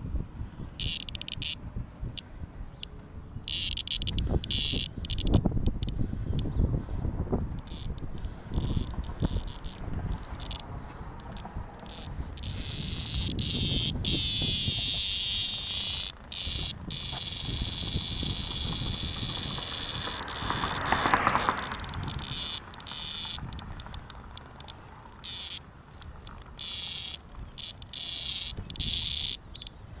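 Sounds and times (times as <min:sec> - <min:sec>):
cicadas buzzing: 0:00.7 - 0:30.0
low insect buzz: 0:11.8 - 0:23.5.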